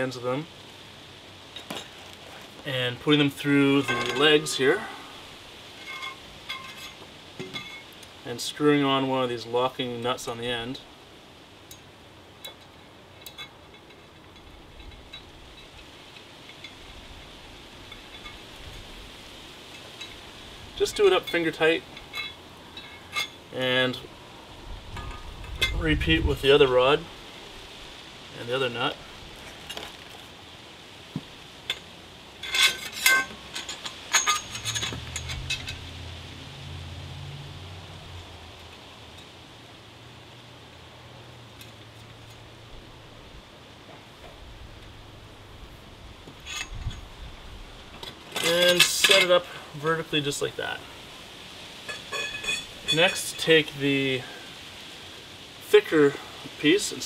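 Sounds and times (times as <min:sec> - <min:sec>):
low hiss: 0:00.0 - 0:57.0
metal rod clinking against metal tubes: 0:03.6 - 0:05.0, 0:05.8 - 0:08.0, 0:11.7 - 0:18.8, 0:20.8 - 0:23.4, 0:31.7 - 0:36.0, 0:46.4 - 0:47.1, 0:48.3 - 0:49.6, 0:51.8 - 0:53.7
short metallic ring: 0:03.8 - 0:04.6, 0:32.4 - 0:35.8, 0:51.9 - 0:53.3.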